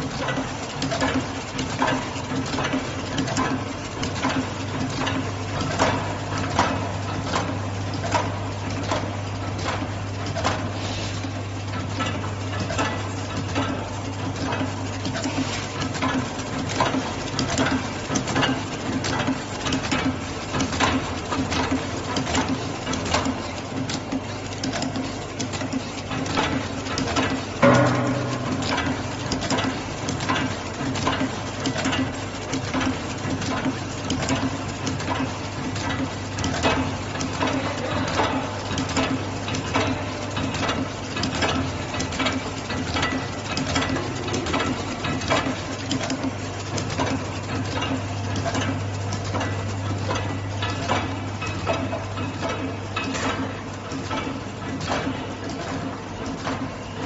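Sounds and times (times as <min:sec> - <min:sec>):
machine motor hum: 0:00.0 - 0:57.0
loud knock: 0:27.6 - 0:29.0.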